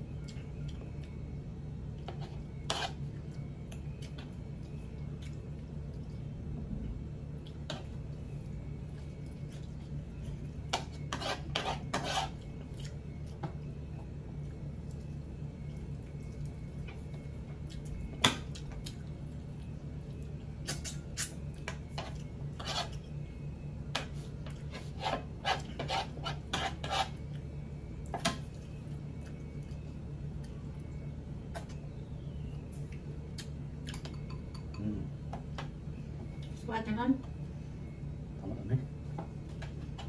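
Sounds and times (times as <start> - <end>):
steady low hum: 0.0 - 40.0
cutlery scraping on plate: 2.1 - 3.0, 10.7 - 12.4, 22.0 - 23.0, 24.5 - 27.2.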